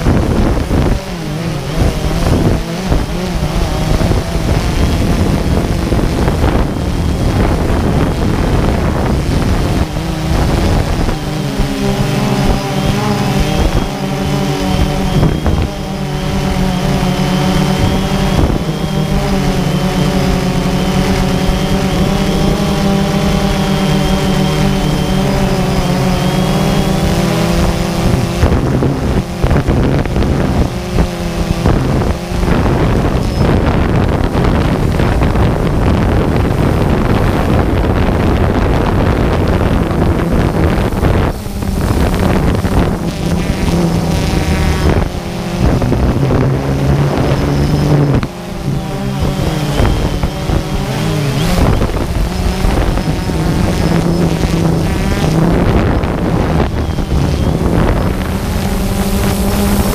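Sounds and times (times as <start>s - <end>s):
drone propellers whirring: 0.0s - 59.9s
wind buffeting microphone: 0.0s - 59.9s.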